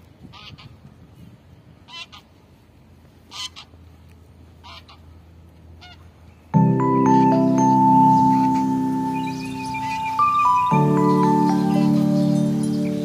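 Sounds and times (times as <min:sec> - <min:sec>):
bird honking calls: 0:05.8 - 0:13.0.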